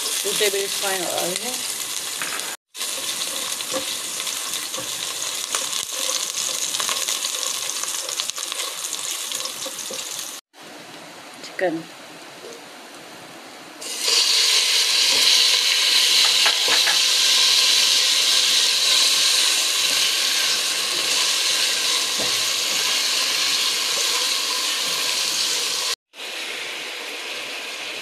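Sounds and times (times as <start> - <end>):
chicken sizzling in hot oil: 0.0 - 10.5, 13.8 - 28.0
spatula stirring: 2.8 - 10.1.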